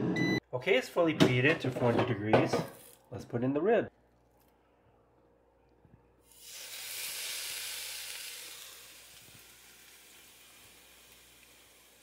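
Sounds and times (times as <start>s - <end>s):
meat sizzling: 6.3s - 12.0s.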